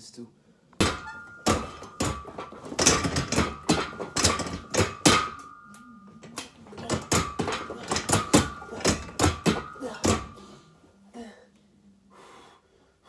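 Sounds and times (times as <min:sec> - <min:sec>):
metal knocks of weight machine: 0:00.8 - 0:10.5
faint steady high tone: 0:05.4 - 0:06.9.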